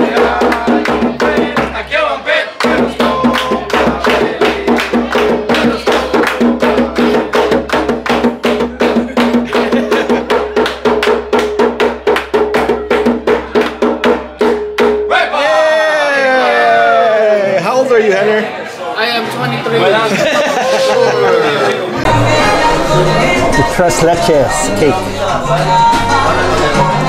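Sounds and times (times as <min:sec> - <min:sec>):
group singing a celebration song: 0:00.0 - 0:10.9, 0:21.7 - 0:27.0
people clapping in rhythm: 0:00.0 - 0:15.0
hand drum beating: 0:02.6 - 0:15.1.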